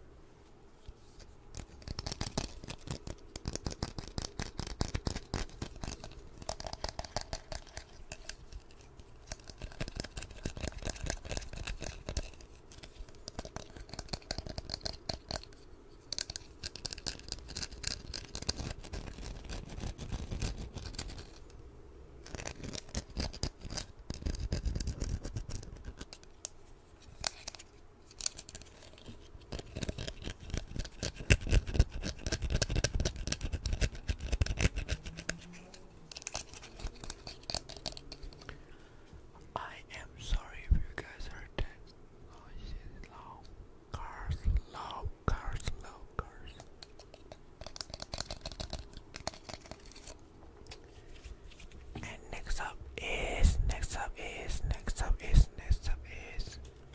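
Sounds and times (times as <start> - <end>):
fingernails scratching and tapping: 46.6 - 50.2.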